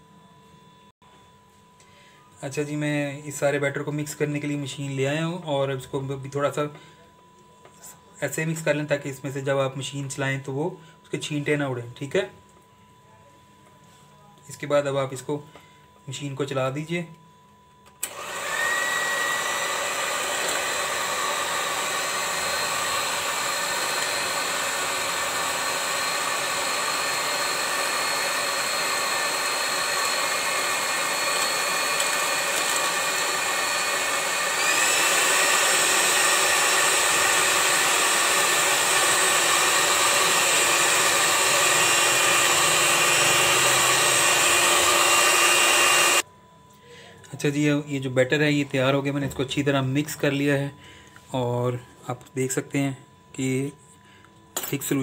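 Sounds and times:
electric mixer motor whine: 18.0s - 46.3s.

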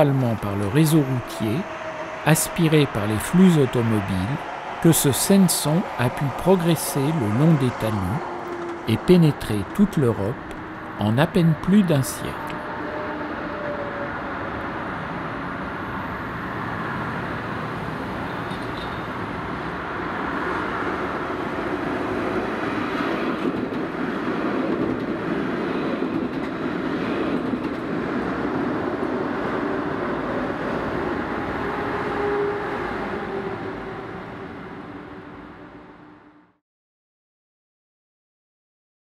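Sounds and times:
urban traffic noise: 0.0s - 36.4s.

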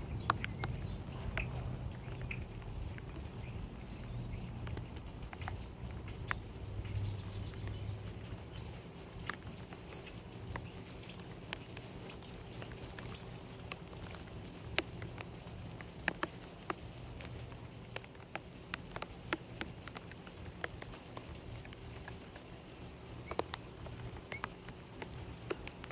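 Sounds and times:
bird chirping: 0.0s - 14.3s, 24.2s - 24.6s, 25.4s - 25.9s
chipmunk nibbling: 0.0s - 25.9s
light rain pattering: 0.0s - 25.9s.

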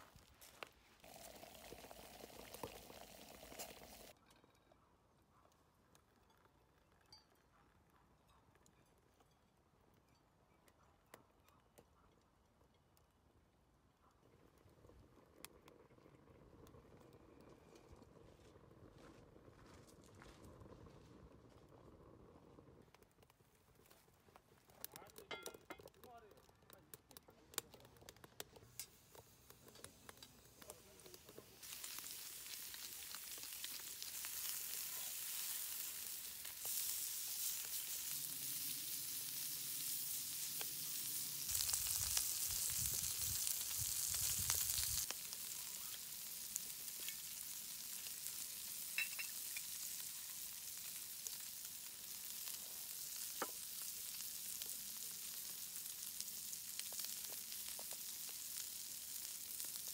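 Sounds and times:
pork sizzling on grill pan: 1.0s - 4.2s, 28.2s - 59.9s.

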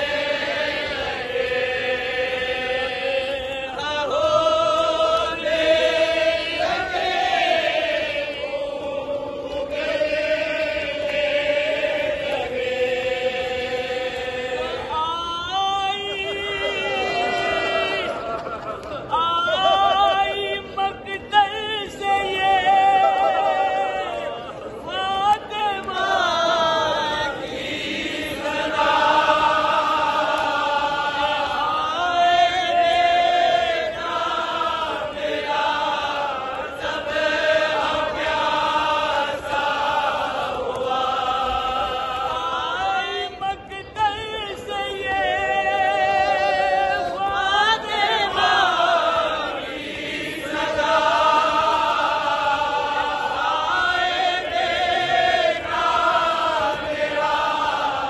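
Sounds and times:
men chanting devotional verse: 0.0s - 18.3s.

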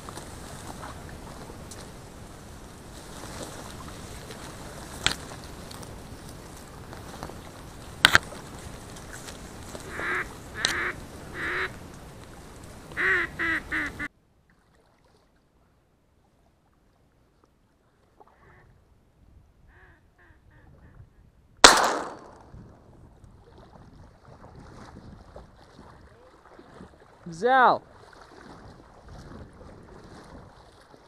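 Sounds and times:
ducks quacking: 9.8s - 11.8s, 12.9s - 14.1s
loud shotgun shot: 21.6s - 22.5s.

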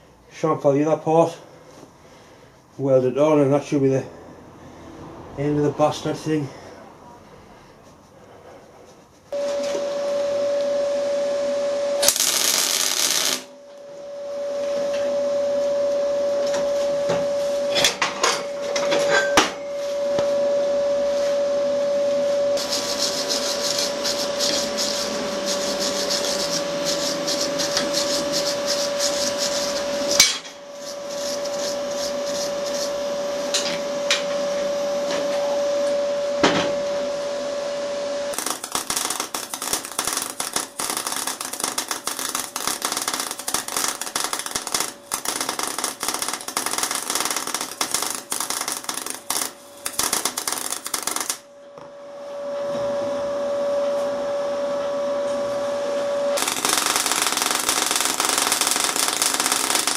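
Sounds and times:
steady whine: 9.3s - 59.9s
welding arc crackling: 12.0s - 13.6s, 22.6s - 32.9s, 38.3s - 51.5s, 56.4s - 59.9s.

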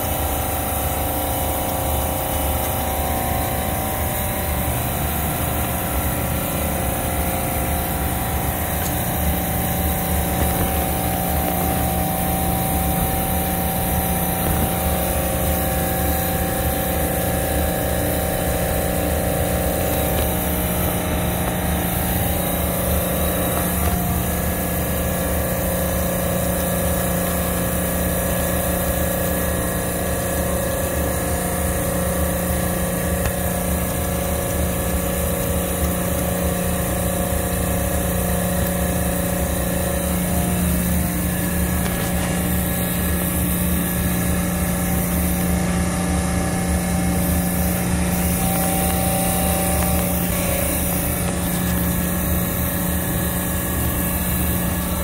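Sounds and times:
refrigeration machinery humming: 0.0s - 55.0s.

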